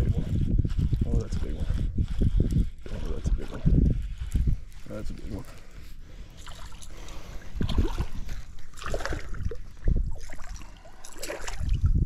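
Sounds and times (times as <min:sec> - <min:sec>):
wind and handling thumps: 0:00.0 - 0:12.0
water splashing: 0:06.3 - 0:12.0
fish thrashing at surface: 0:07.5 - 0:11.8.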